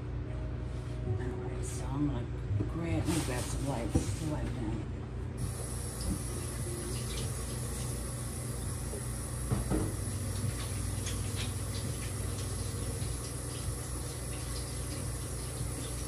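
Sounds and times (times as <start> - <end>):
mechanical hum with hiss: 0.0 - 16.0
knocks and clatters at sink: 9.5 - 10.6.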